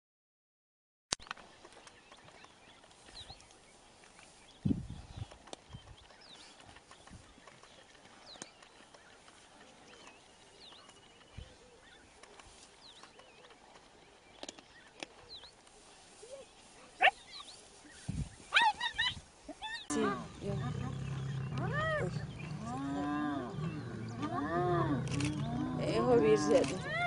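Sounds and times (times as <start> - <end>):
hyena call rising in pitch: 19.9 - 26.2.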